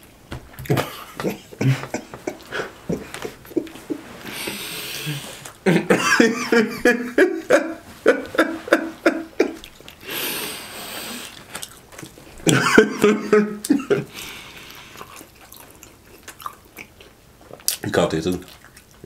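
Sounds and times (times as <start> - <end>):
men laughing: 0.6 - 9.7, 12.4 - 14.3
breathy exhale: 4.2 - 5.5, 10.0 - 11.4, 14.1 - 15.1.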